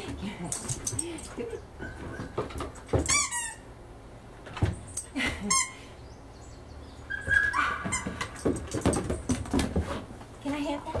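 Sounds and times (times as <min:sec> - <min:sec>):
puppy barking: 0:07.2 - 0:08.1.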